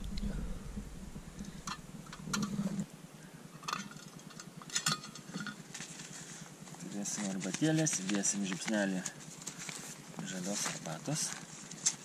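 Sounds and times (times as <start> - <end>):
low rumble: 0.0 - 2.9
camp cookware clinking: 3.5 - 5.7.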